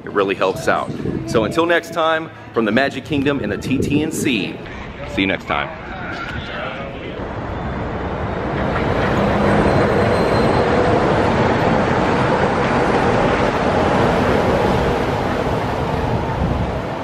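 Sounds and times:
monorail rushing past overhead: 0:00.0 - 0:17.0.

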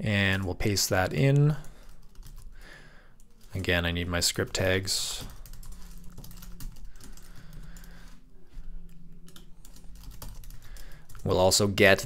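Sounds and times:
faint low hum: 0:00.0 - 0:12.0
computer keyboard typing: 0:01.3 - 0:02.6, 0:03.2 - 0:08.2, 0:08.8 - 0:12.0.

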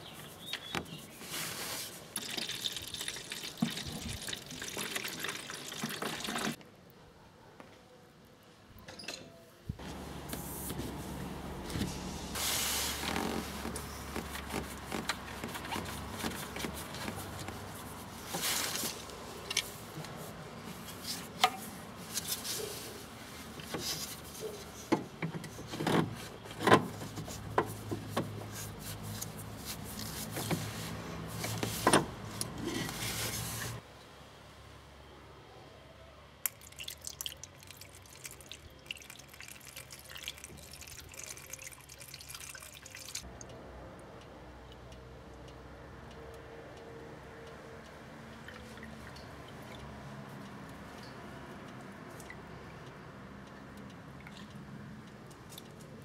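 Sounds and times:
coolant draining through hose: 0:02.1 - 0:06.6, 0:36.4 - 0:43.2
liquid trickling into funnel: 0:02.1 - 0:06.6, 0:36.4 - 0:43.3.

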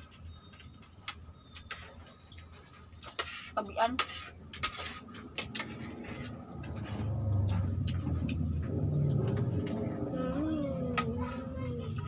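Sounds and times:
low rumble: 0:06.0 - 0:12.0.

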